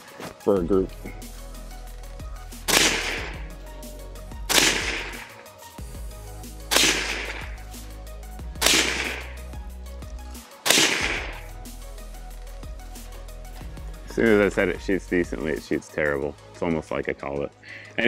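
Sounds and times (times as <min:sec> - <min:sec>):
gunshots with echo: 0:02.7 - 0:03.5, 0:04.5 - 0:05.4, 0:06.7 - 0:07.6, 0:08.6 - 0:09.4, 0:10.6 - 0:11.5.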